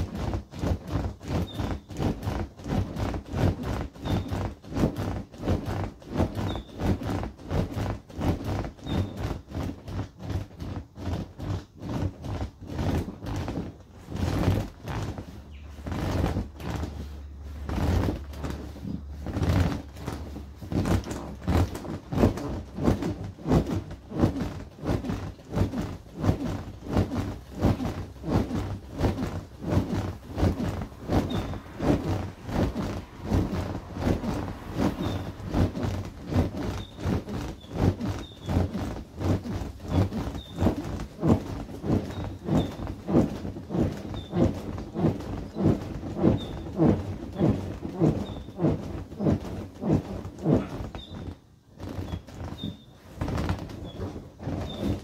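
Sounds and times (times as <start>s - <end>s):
thumps on inflatable toy: 0.0s - 55.0s
vinyl rubbing: 0.0s - 55.0s.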